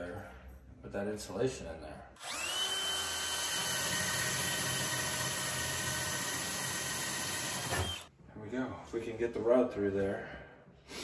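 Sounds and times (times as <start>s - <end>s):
cordless drill boring through wood: 2.2s - 8.1s.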